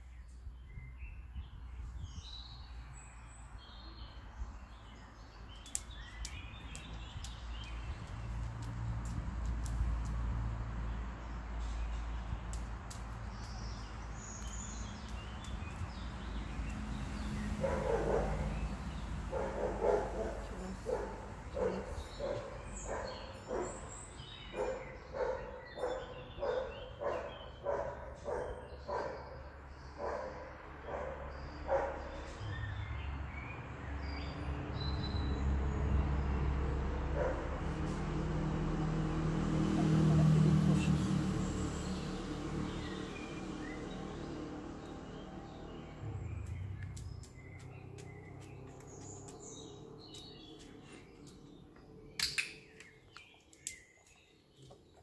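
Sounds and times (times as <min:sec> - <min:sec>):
birds chirping: 0:00.0 - 0:37.9, 0:39.6 - 0:55.0
vehicle engine rumble: 0:04.8 - 0:25.3, 0:31.4 - 0:53.4
dog barking: 0:17.6 - 0:18.5, 0:19.3 - 0:23.8, 0:24.5 - 0:29.4, 0:30.0 - 0:32.1, 0:37.1 - 0:37.6.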